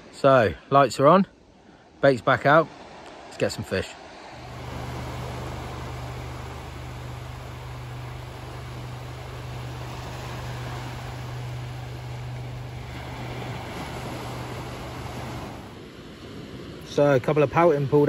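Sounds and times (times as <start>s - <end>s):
sea waves on beach: 0.0s - 18.0s
constant low hum: 4.2s - 16.9s.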